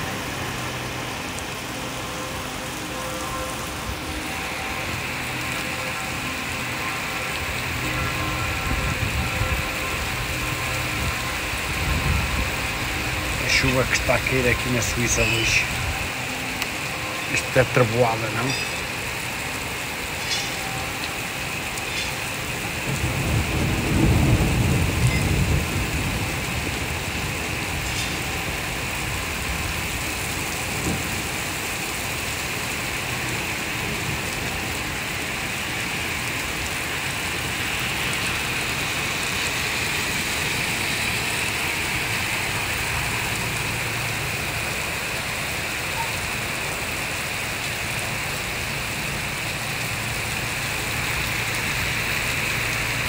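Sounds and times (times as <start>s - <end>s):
heavy rain: 0.0s - 53.0s
thunder rumbling: 7.4s - 16.2s, 20.6s - 31.4s.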